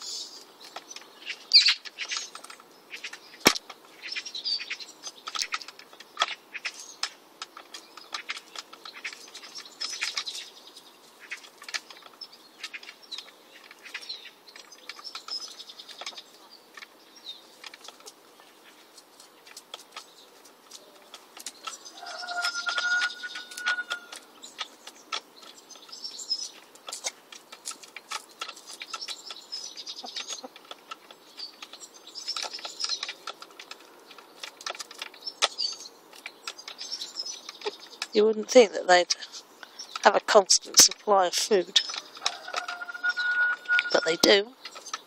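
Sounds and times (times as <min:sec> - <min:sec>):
chickens pecking clicks: 0:00.4 - 0:38.2, 0:39.1 - 0:45.0
soft hen chirps: 0:21.8 - 0:24.2, 0:41.9 - 0:44.4.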